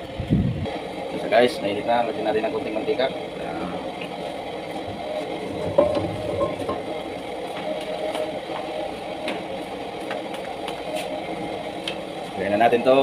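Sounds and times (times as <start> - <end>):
kitchen equipment humming: 0.0 - 13.0.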